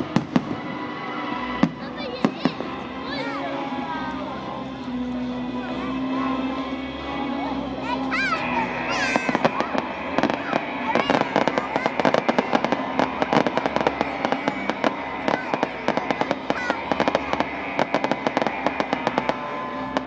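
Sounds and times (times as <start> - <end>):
fireworks popping and crackling: 0.0 - 3.4, 8.0 - 20.0.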